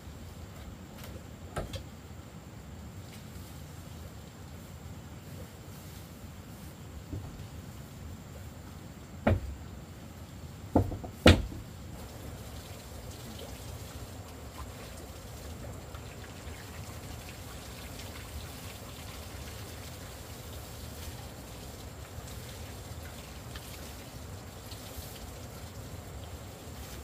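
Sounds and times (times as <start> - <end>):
faint background hiss: 0.0 - 27.0
sharp knocks: 9.2 - 9.5, 10.7 - 11.6.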